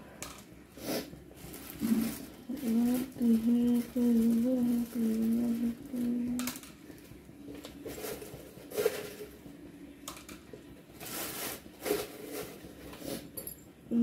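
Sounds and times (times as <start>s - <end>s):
plastic bag crinkling: 1.4s - 9.3s, 11.0s - 12.8s.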